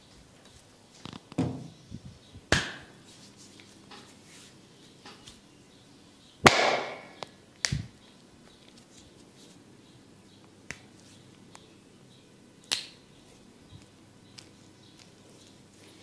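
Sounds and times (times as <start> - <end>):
percussive massage smacks: 2.5 - 2.9, 6.4 - 7.8.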